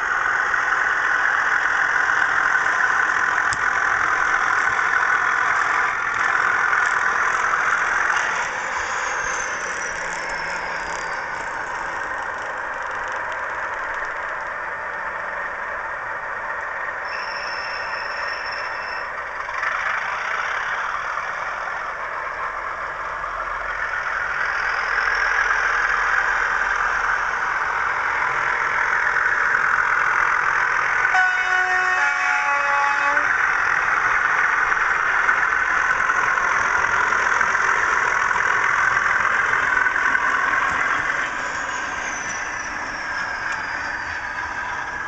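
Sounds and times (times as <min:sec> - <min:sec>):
model diesel engine sound: 0:00.0 - 0:45.0
two-tone horn: 0:31.1 - 0:33.4.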